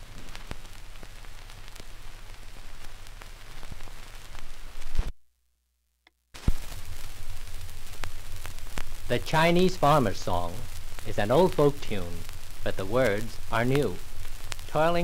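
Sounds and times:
record surface hiss and crackle: 0.0 - 15.0.

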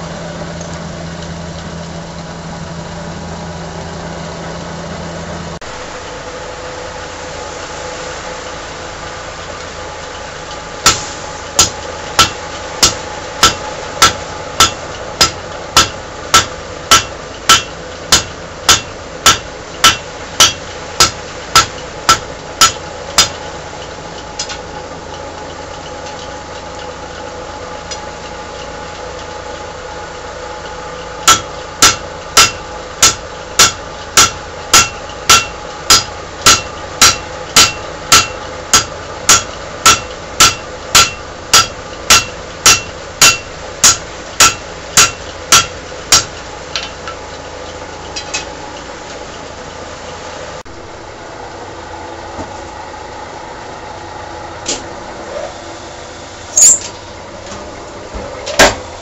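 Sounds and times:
steady motor hum: 0.0 - 59.0
hammer striking steel on anvil: 10.8 - 23.4, 31.2 - 47.2.

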